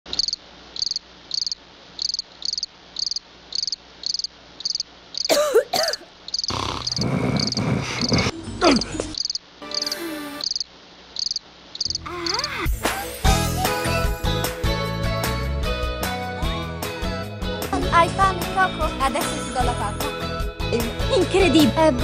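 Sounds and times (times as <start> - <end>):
cricket chirping: 0.1 - 5.4, 6.3 - 8.2, 9.2 - 12.6
cartoon character vocal noises: 6.5 - 10.4, 12.0 - 13.2.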